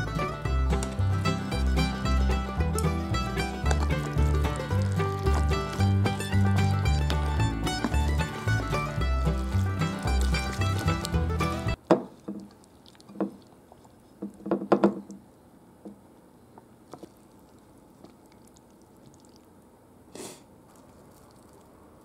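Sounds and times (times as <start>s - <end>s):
background music: 0.0s - 11.8s.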